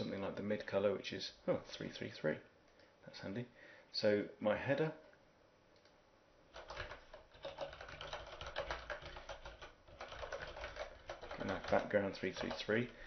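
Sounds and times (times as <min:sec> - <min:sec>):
computer keyboard typing: 0:06.5 - 0:13.0.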